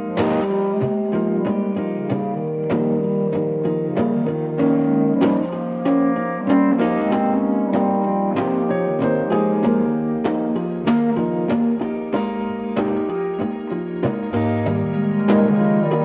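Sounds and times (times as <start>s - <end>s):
long held low tones: 0.0s - 10.6s, 14.4s - 16.0s
ambient piano notes: 0.0s - 16.0s.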